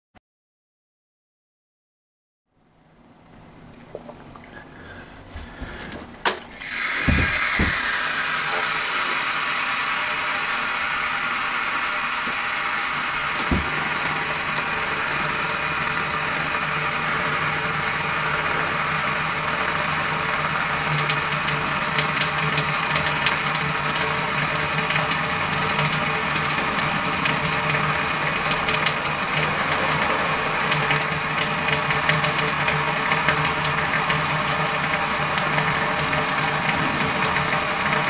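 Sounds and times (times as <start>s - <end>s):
low electrical hum: 2.5s - 38.0s
water crackling: 3.6s - 4.6s
water hissing as it heats: 5.5s - 38.0s.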